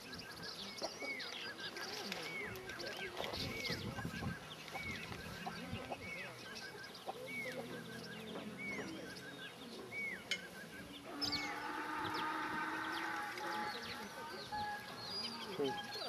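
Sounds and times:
chickens clucking: 0.0 - 16.0
rising-and-falling chicken call: 11.1 - 14.1
loud drawn-out call: 11.1 - 14.9.

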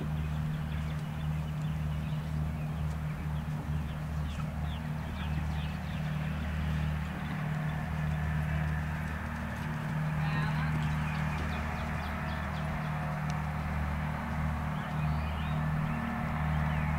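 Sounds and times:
horse hoofbeats on sand: 0.0 - 16.9
low hum: 0.0 - 16.9.

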